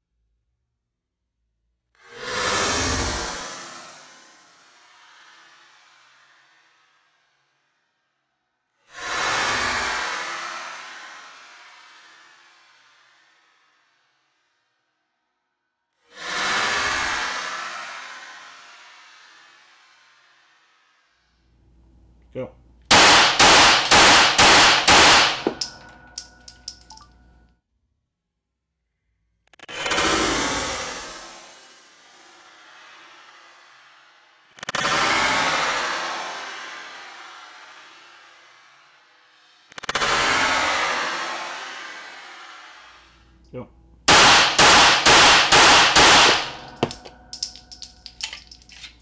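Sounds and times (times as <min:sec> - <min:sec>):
pistol shots: 0:22.9 - 0:25.8, 0:44.1 - 0:47.0
brass casings clinking: 0:24.8 - 0:27.1, 0:46.2 - 0:49.0.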